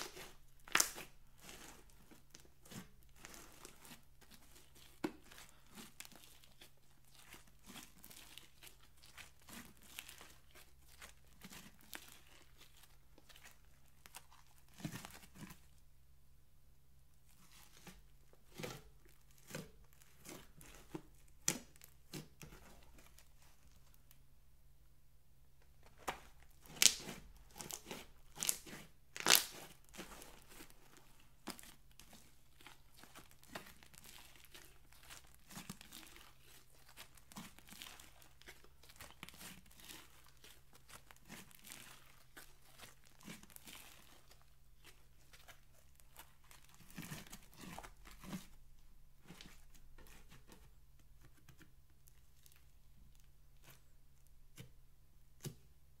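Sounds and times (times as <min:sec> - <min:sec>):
slime crackling and popping: 0:00.0 - 0:15.6, 0:26.0 - 0:48.4.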